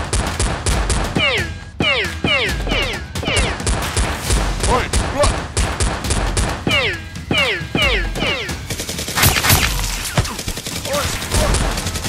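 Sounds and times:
rapid toy blaster shots: 0:05.2 - 0:12.0.

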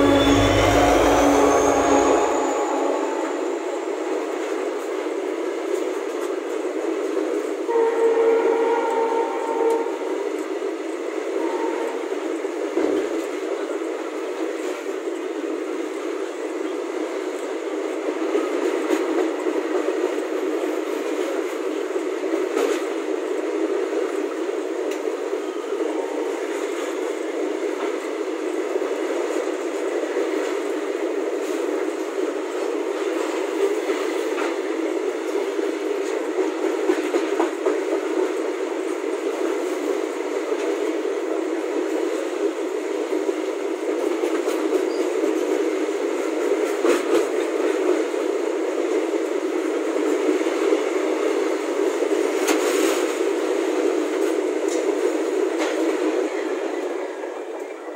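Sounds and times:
freight train wheels rattling on rails: 0:12.2 - 0:57.9.

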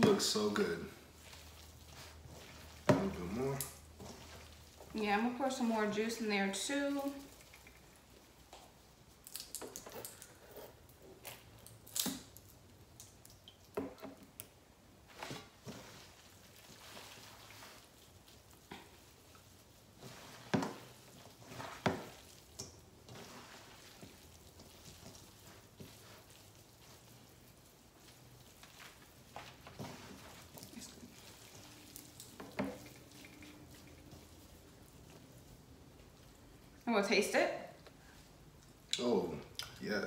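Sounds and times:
wet squishing of meat in bowl: 0:00.0 - 0:36.9.

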